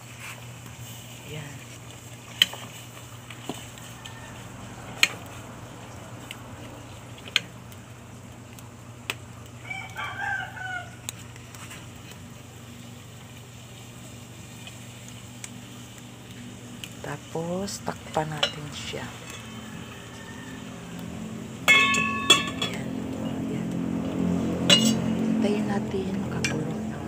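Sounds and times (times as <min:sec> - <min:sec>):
wood fire popping: 0:00.0 - 0:27.0
rooster crowing: 0:03.6 - 0:06.0, 0:09.6 - 0:11.2, 0:19.0 - 0:22.5.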